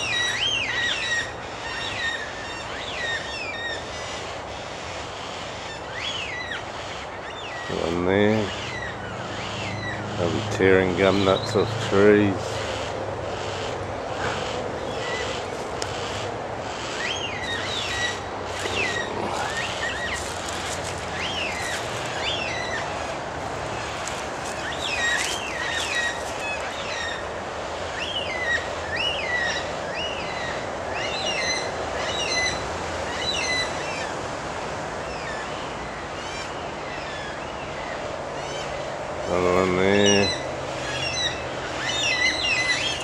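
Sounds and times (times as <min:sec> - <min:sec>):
cockatoos calling: 0:00.0 - 0:34.2, 0:35.0 - 0:43.0
traffic noise: 0:00.0 - 0:43.0.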